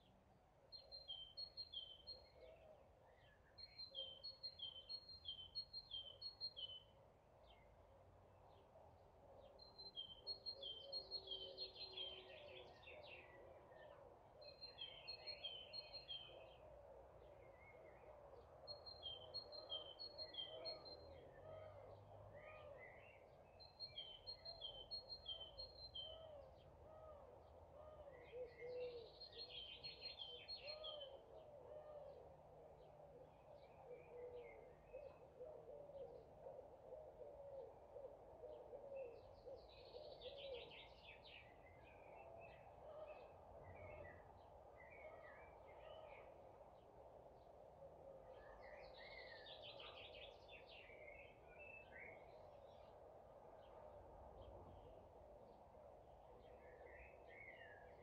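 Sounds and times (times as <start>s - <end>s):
murmur of low bird calls: 0.0s - 58.0s
birds singing: 9.4s - 53.0s.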